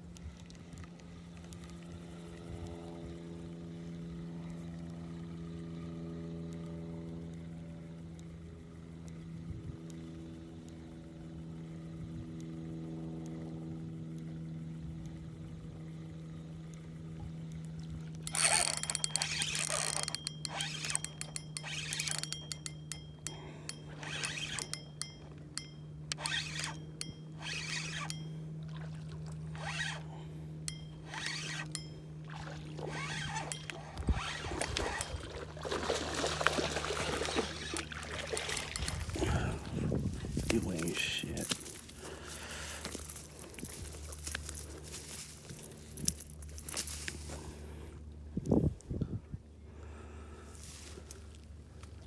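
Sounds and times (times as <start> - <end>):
boat motor humming: 0.0 - 46.6
fishing reel cranking: 18.1 - 28.4, 29.5 - 35.5, 36.2 - 39.6
water splashing: 34.6 - 39.0.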